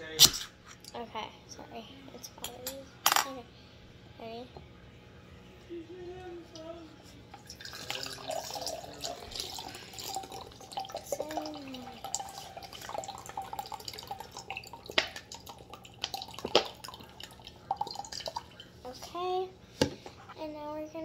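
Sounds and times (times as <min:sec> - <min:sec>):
liquid trickling into glass: 0:07.4 - 0:19.0.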